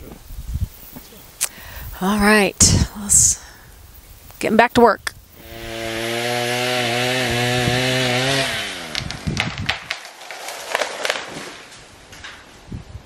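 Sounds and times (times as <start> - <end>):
chainsaw cutting at full throttle: 5.4 - 11.4
tree cracking and crashing down: 5.4 - 12.7.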